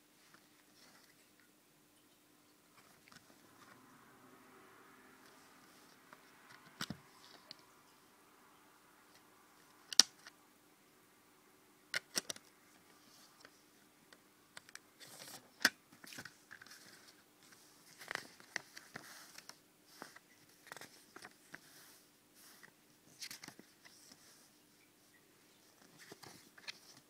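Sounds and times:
paper booklet rustling: 0:14.6 - 0:24.5, 0:25.7 - 0:27.0.

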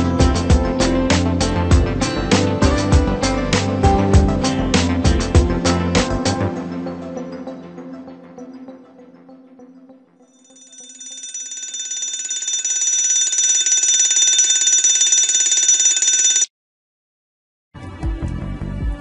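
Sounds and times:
high trilling ringer: 0:10.5 - 0:16.5.

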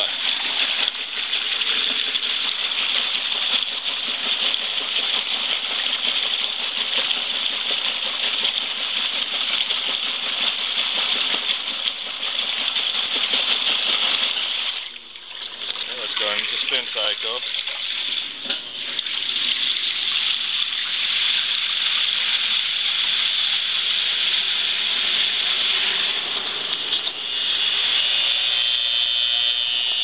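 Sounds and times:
washing machine clatter: 0:00.0 - 0:22.4
water churning and sloshing: 0:00.0 - 0:27.7.

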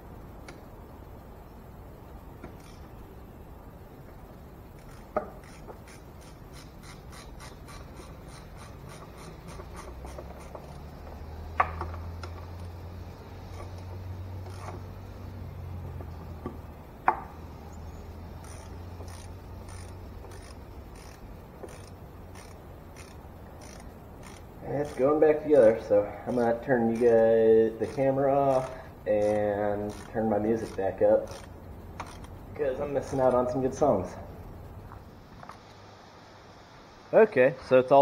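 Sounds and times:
socket wrench ratcheting: 0:02.4 - 0:02.9, 0:04.8 - 0:12.8, 0:14.4 - 0:14.8, 0:18.4 - 0:25.1, 0:26.8 - 0:32.4.

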